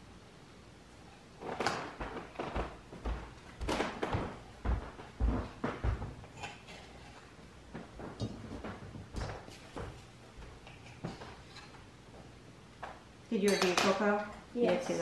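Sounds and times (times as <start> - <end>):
kitchen utensils clattering: 13.4 - 15.0.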